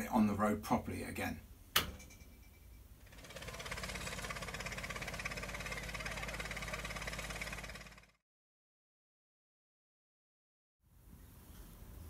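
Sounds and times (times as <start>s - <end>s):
engine running with fast beat: 3.1s - 8.2s.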